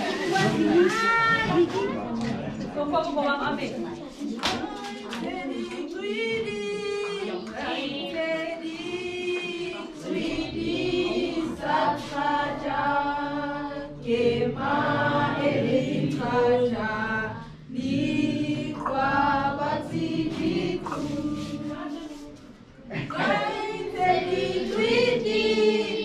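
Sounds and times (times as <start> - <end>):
children singing unaccompanied: 4.5 - 26.0.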